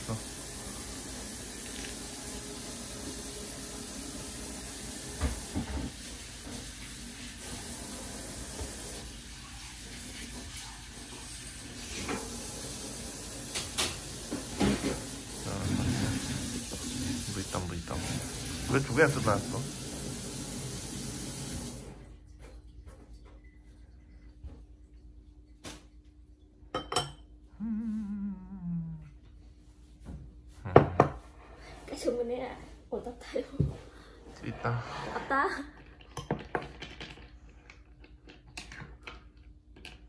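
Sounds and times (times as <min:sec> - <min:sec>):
person humming: 0:15.5 - 0:16.3, 0:27.5 - 0:29.3
tableware clinking: 0:26.8 - 0:27.3.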